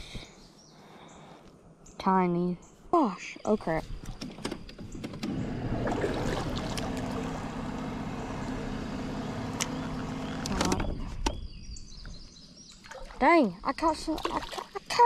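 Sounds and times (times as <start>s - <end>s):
trolling motor running: 4.1s - 12.7s
sharp clicks: 9.6s - 9.8s.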